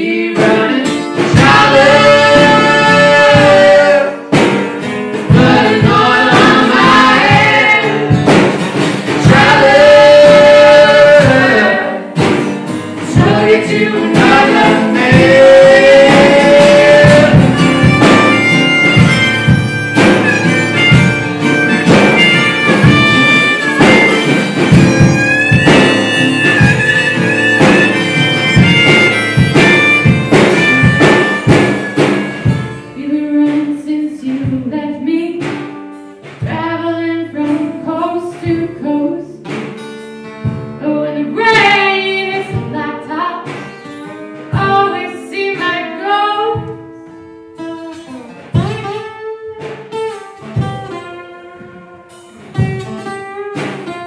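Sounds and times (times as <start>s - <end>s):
two voices singing: 0.0s - 4.6s, 5.2s - 12.4s, 13.0s - 20.2s, 21.6s - 39.6s, 40.8s - 43.7s, 44.5s - 46.8s
drums: 0.0s - 54.0s
strummed acoustic guitar: 0.0s - 54.0s
harmonica solo: 15.2s - 32.9s.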